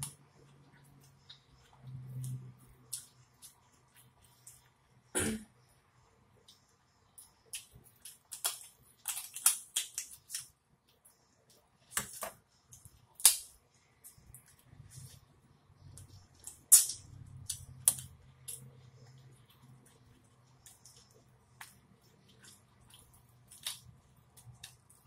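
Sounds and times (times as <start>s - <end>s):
lobster shell crackling: 7.6s - 10.5s.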